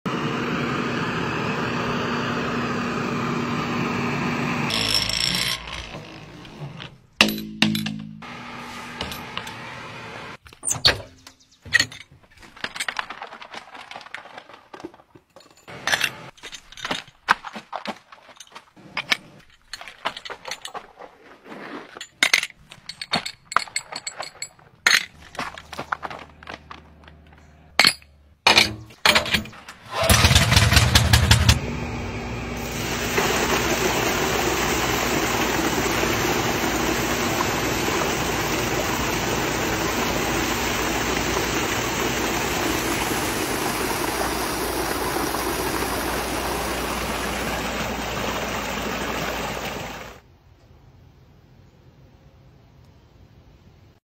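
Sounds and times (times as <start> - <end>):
metal clanks and clicks: 27.0 - 31.5
water pouring from a hose: 32.6 - 50.2.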